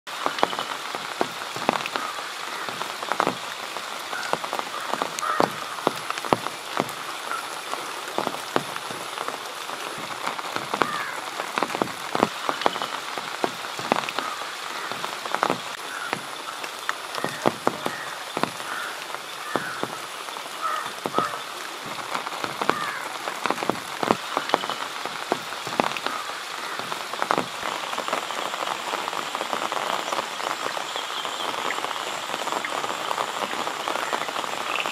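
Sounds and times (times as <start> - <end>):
rain falling: 0.1 - 34.9
frogs croaking: 0.2 - 34.9.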